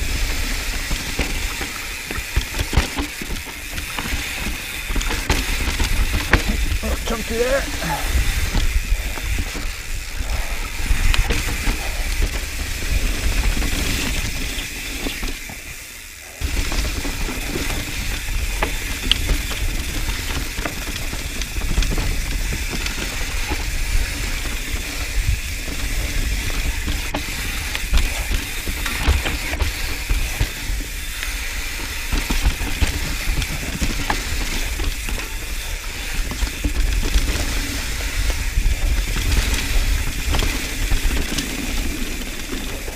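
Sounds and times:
bike chain rattling: 0.0s - 42.9s
bike freehub ratchet buzzing: 0.0s - 42.9s.

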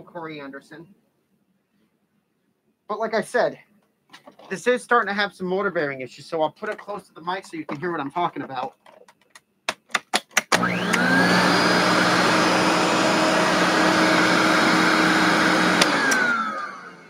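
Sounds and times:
vacuum cleaner motor running: 10.5s - 17.0s.

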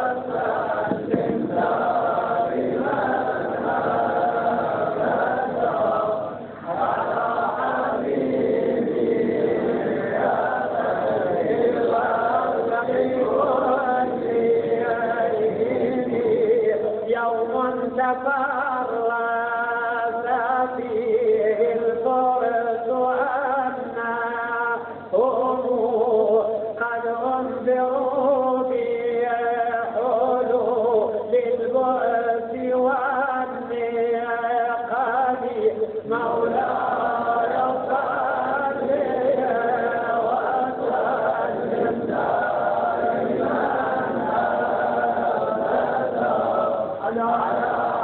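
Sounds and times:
voices chanting together: 0.0s - 16.8s, 34.8s - 48.0s
man chanting: 2.0s - 48.0s.

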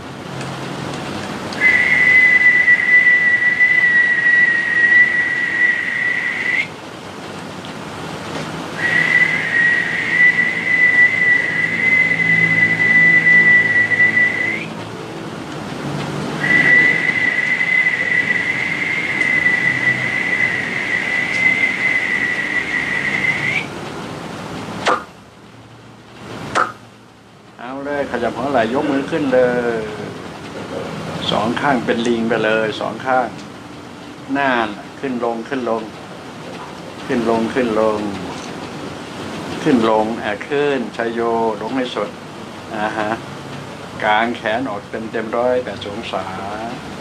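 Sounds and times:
high whistled note: 1.6s - 6.7s, 8.8s - 14.7s, 16.4s - 23.7s
quick falling swish: 24.8s - 25.1s, 26.5s - 26.8s.

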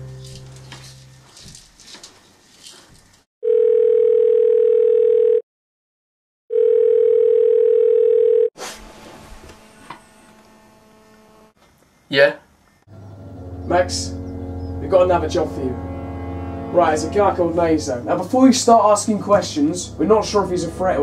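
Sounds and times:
mobile phone ringing: 3.4s - 5.4s, 6.5s - 8.5s.

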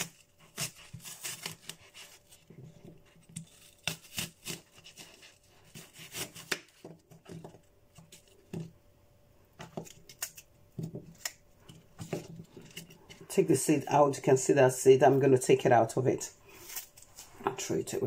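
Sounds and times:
knife cutting apple on board: 0.0s - 8.7s.

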